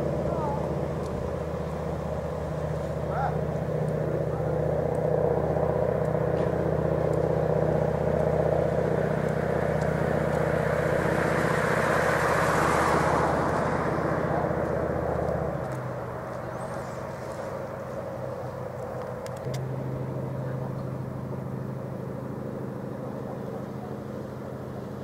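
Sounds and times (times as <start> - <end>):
boat engines running: 0.0 - 25.0
bow wave rushing water: 0.0 - 25.0.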